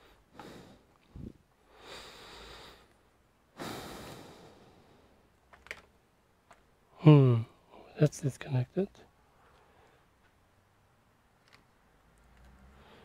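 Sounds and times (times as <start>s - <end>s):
person exhaling: 0.0s - 3.0s, 3.6s - 5.2s.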